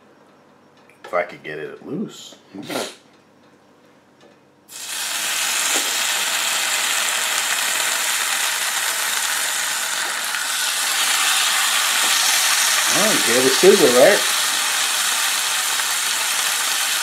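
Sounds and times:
bacon sizzling on a griddle: 4.7s - 17.0s.

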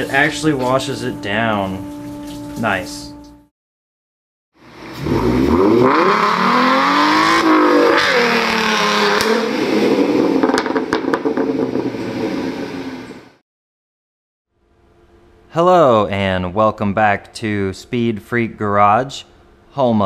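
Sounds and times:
car engine revving: 4.6s - 13.2s.

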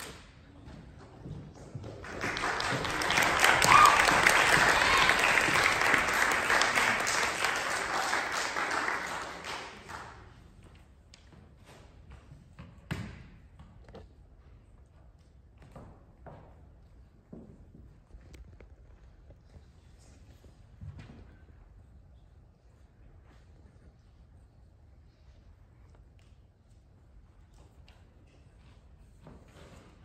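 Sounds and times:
audience applauding: 1.9s - 10.3s.

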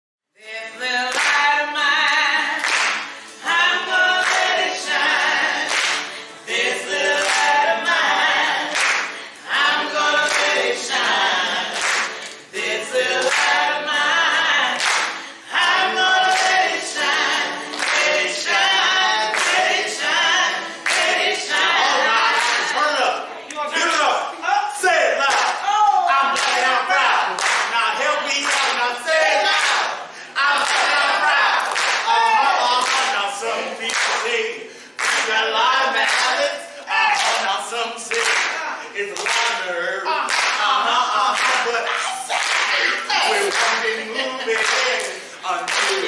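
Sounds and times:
group singing a cappella: 0.4s - 46.0s
sharp hand claps: 1.1s - 1.5s, 2.6s - 3.4s, 4.2s - 4.6s, 5.6s - 6.2s, 8.7s - 9.3s, 10.3s - 10.6s, 11.7s - 12.5s, 13.2s - 13.6s, 14.8s - 15.3s, 16.3s - 18.7s, 19.3s - 19.6s, 20.8s - 21.2s, 25.2s - 25.6s, 26.3s - 26.7s, 27.3s - 27.8s, 28.4s - 28.8s, 29.5s - 30.0s, 31.6s - 32.1s, 32.8s - 33.2s, 33.8s - 34.4s, 35.0s - 35.4s, 36.0s - 36.4s, 38.1s - 39.6s, 40.3s - 40.7s, 42.4s - 42.8s, 43.4s - 43.8s, 44.6s - 46.0s.

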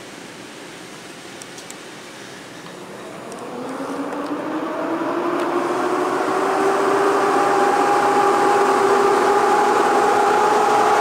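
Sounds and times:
electric locomotive whine: 2.4s - 11.0s.

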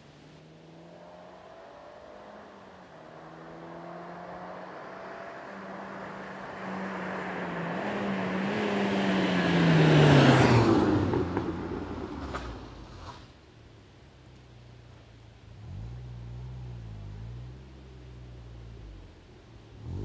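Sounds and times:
car engine accelerating: 0.3s - 13.0s, 14.3s - 20.0s
car passing by: 0.4s - 13.4s.

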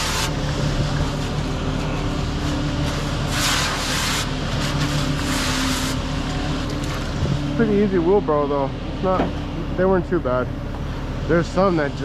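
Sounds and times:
water hose spray hissing: 0.0s - 0.4s, 3.2s - 6.0s
concrete mixer truck running: 0.0s - 12.0s.

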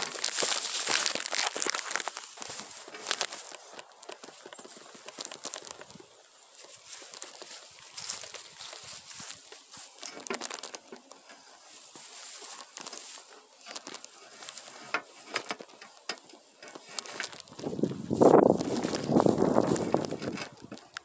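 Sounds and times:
loud rustle: 0.0s - 21.0s
pole handling crackles and clicks: 0.0s - 21.0s.

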